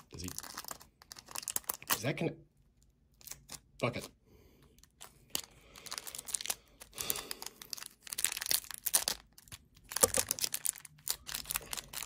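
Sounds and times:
plastic film crinkling: 0.0s - 2.1s, 4.8s - 12.0s.

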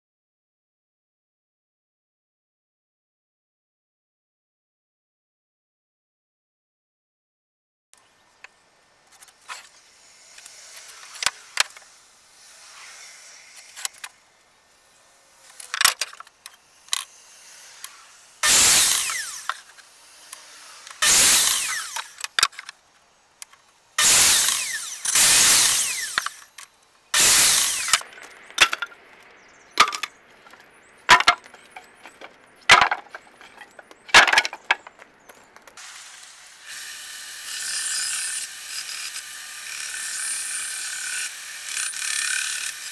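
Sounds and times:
mitre saw cutting wood: 9.4s - 22.7s, 24.0s - 28.9s, 35.8s - 42.9s
boards knocking and clattering: 28.0s - 29.0s, 29.8s - 35.8s.

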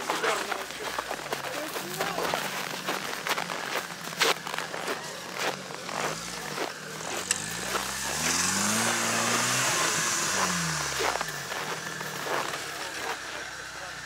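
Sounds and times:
vehicle engine revving: 0.0s - 14.0s.

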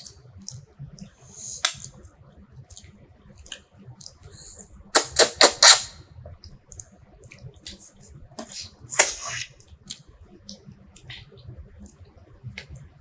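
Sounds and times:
wet mouth clicks: 0.0s - 4.2s, 6.4s - 12.8s.

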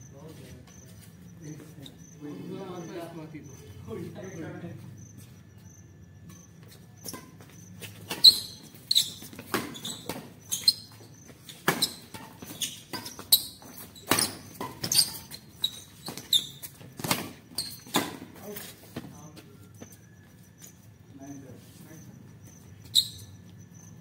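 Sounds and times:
shoe squeaks: 0.0s - 4.4s, 5.0s - 24.0s.

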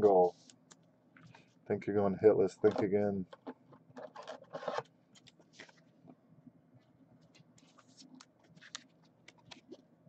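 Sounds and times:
cards and plastic sleeves rustling: 2.6s - 5.9s, 7.2s - 9.9s.

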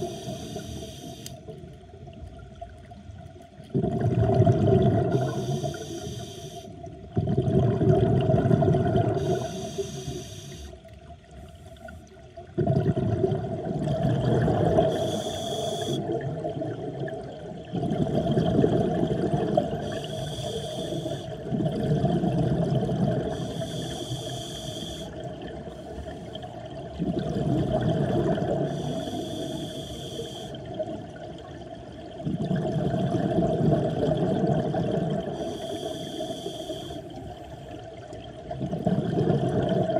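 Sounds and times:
regulator inhalation hiss: 0.0s - 1.4s, 5.1s - 6.8s, 9.2s - 10.8s, 14.9s - 16.0s, 19.8s - 21.4s, 23.3s - 26.4s, 28.7s - 30.6s, 35.4s - 37.2s
exhaled bubbles underwater: 0.0s - 39.9s.

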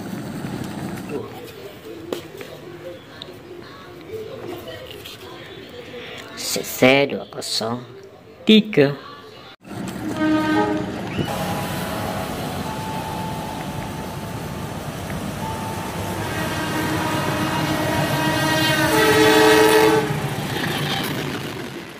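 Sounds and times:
train rumble: 0.0s - 2.3s, 9.6s - 21.9s
locomotive air horn: 10.0s - 14.5s, 15.4s - 20.8s.

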